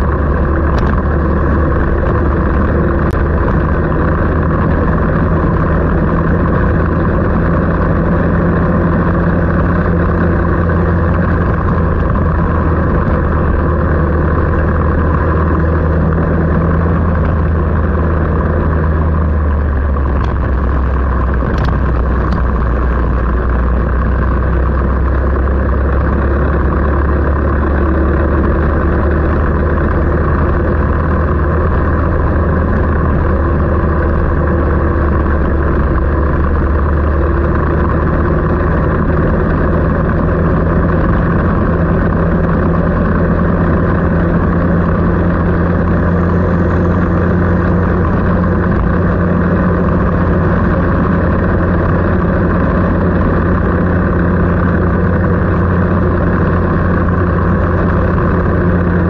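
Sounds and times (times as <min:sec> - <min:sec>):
engine running steadily: 0:00.0 - 0:59.0.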